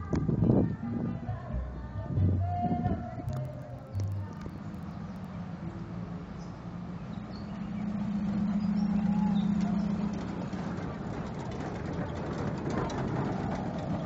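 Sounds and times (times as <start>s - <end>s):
road train passing with low hum: 0.0s - 14.0s
faint bird chirps: 4.2s - 10.8s.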